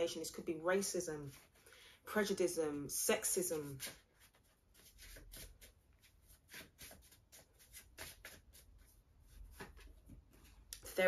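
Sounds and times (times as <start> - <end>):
cards being handled on table: 3.6 - 8.7.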